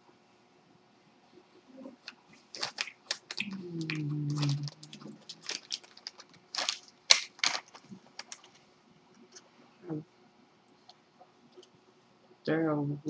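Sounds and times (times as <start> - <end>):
plastic snack packet crinkling: 2.0 - 8.6.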